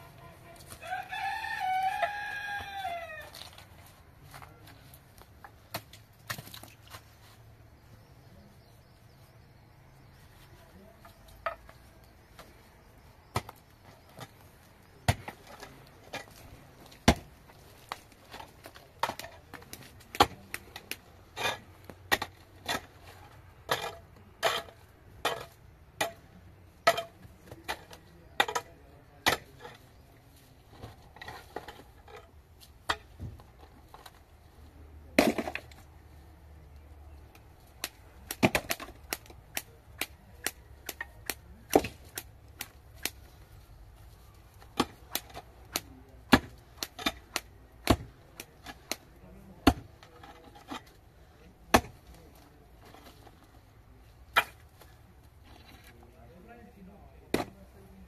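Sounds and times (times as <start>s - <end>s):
pickaxe striking stony soil: 16.1s - 17.3s, 37.8s - 43.2s, 44.7s - 49.0s, 49.6s - 49.9s, 51.7s - 52.0s.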